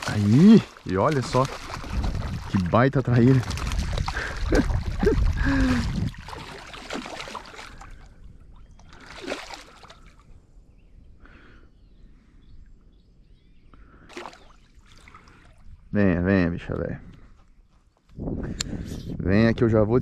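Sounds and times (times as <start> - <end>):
fish splashing in water: 0.0 - 10.2, 14.1 - 15.6.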